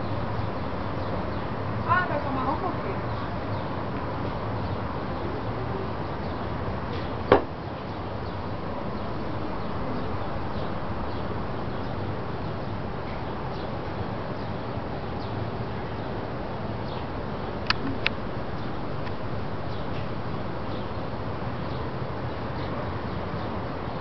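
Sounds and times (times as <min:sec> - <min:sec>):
rushing outdoor noise: 0:00.0 - 0:24.0
sharp knock: 0:07.3 - 0:07.6.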